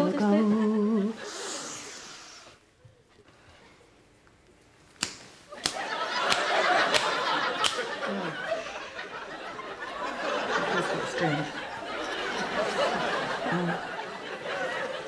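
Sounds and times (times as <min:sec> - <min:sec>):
crowd laughter: 0:05.5 - 0:15.0.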